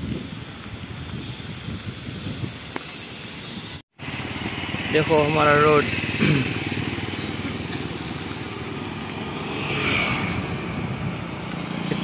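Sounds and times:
low road rumble: 0.0 - 12.0
motorcycle passing: 4.0 - 12.0.

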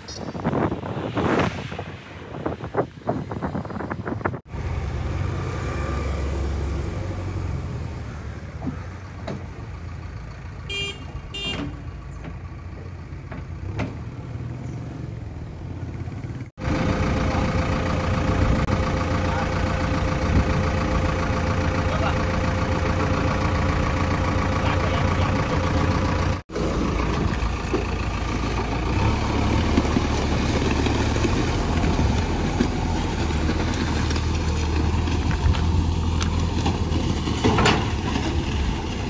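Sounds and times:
road traffic: 0.0 - 39.0
diesel engine running: 3.4 - 39.0
backhoe diesel engine humming: 3.6 - 39.0
vehicle horn beeps: 10.7 - 11.8.

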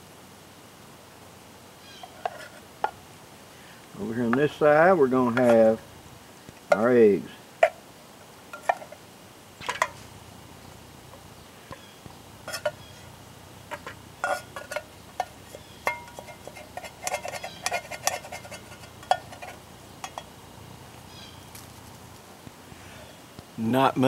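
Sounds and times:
utensil scraping metal cup: 2.0 - 3.0, 12.4 - 13.1, 13.7 - 20.3.

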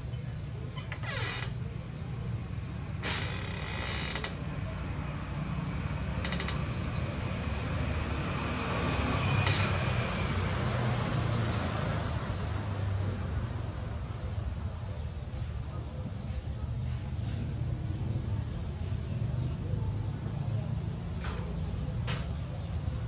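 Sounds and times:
sharp click: 9.5 - 9.7.

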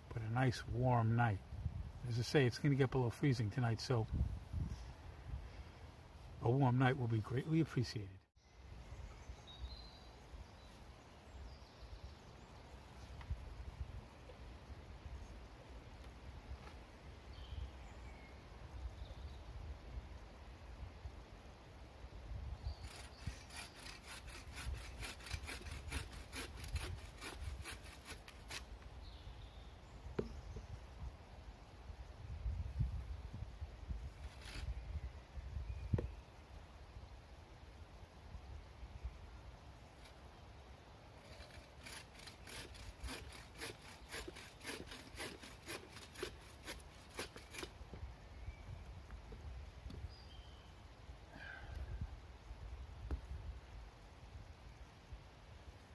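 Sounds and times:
bow saw cutting a branch: 22.7 - 28.9, 34.2 - 34.8, 41.2 - 47.8.

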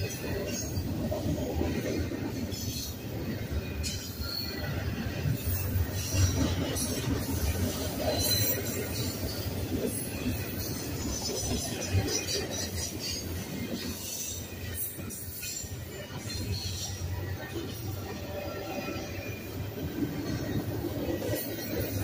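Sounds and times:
train wheels rumbling on rails: 0.0 - 22.0
high-pitched wheel squeals: 8.0 - 9.1.

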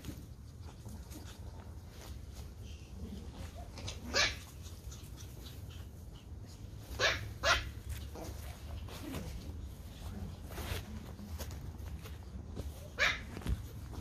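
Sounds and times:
small dogs yapping: 3.5 - 9.1, 12.8 - 13.7.

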